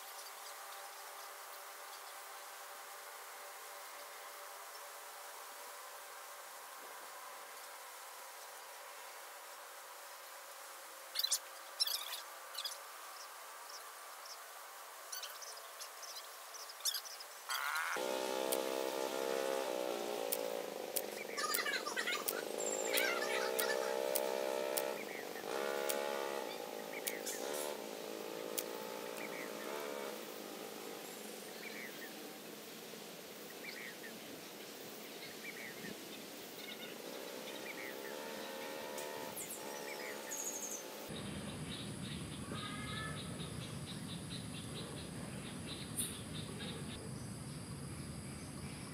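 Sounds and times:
bird chirping: 0:11.2 - 0:14.4, 0:15.1 - 0:30.2, 0:35.0 - 0:48.9
pitched buzzing with rising sweep: 0:17.5 - 0:33.3, 0:36.6 - 0:42.2.

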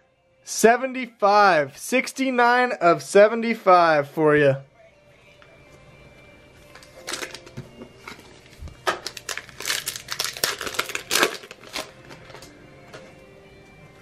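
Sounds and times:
wrapper crinkling and tearing: 0:06.7 - 0:07.6, 0:08.4 - 0:12.5.

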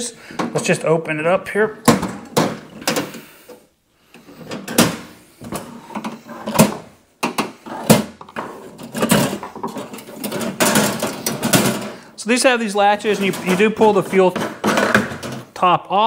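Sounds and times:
latches clicking and knocking: 0:01.8 - 0:03.2, 0:04.4 - 0:12.0, 0:13.1 - 0:15.5.

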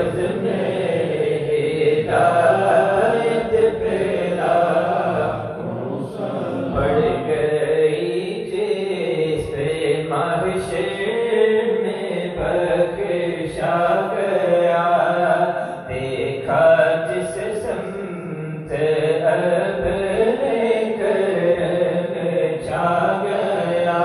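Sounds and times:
men chanting: 0:00.0 - 0:12.4.

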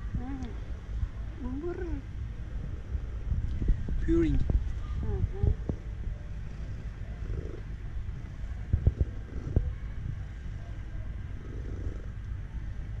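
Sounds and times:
cat purring: 0:05.0 - 0:12.7.

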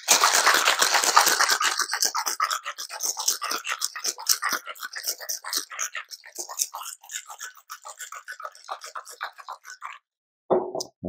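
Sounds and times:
cocktail shaker rattling: 0:00.0 - 0:05.7.

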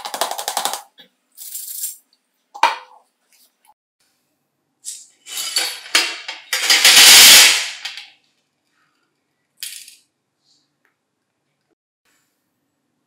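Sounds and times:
metal parts clattering into tray: 0:05.2 - 0:08.1.

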